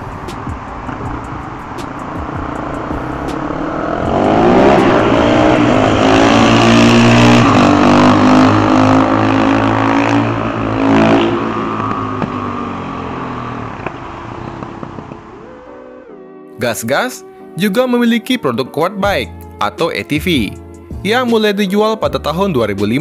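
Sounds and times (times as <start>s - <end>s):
motorcycle engine revving: 0.0s - 15.7s.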